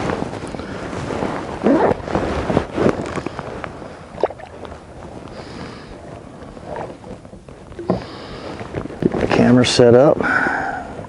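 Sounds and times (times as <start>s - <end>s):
gear rustling and knocking: 6.0s - 10.0s.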